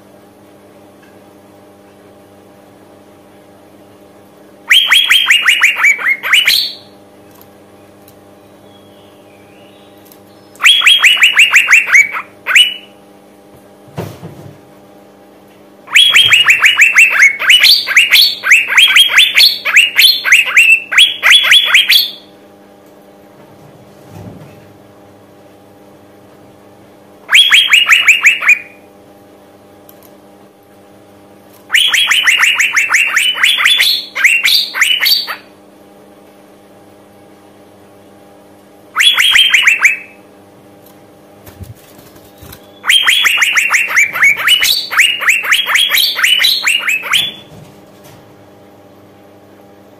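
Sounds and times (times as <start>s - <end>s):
faint steady hum: 0.0s - 49.9s
bird calling sharp notes: 4.7s - 7.0s, 8.7s - 12.9s, 15.9s - 22.3s, 27.3s - 28.8s, 31.7s - 35.5s, 39.0s - 40.2s, 42.4s - 47.5s.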